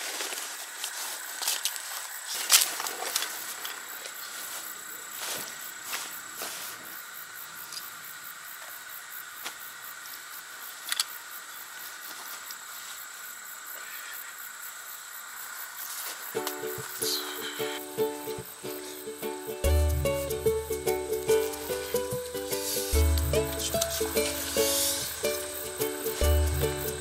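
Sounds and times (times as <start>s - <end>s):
camping gear rustling on grass: 0.0s - 7.9s, 15.8s - 27.0s
insects trilling: 0.0s - 27.0s
plucked ukulele music: 16.4s - 27.0s.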